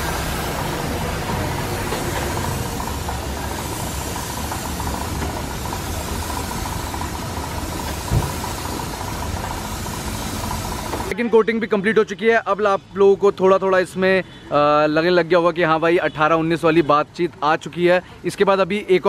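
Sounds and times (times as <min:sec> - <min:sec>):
paint spray gun hissing: 0:00.0 - 0:11.1
short thump: 0:08.0 - 0:08.4.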